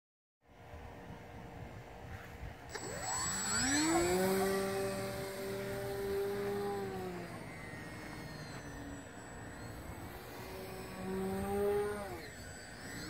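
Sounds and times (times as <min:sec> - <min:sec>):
rc plane electric motor whine: 0:02.7 - 0:13.0.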